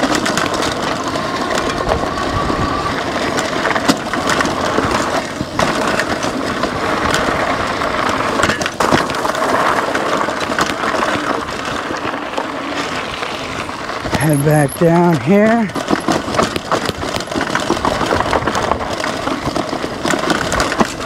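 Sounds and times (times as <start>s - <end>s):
bike clattering and rattling: 0.0s - 21.0s
bike tyres crunching over gravel: 0.0s - 21.0s
rocks knocking against fenders: 15.8s - 18.9s.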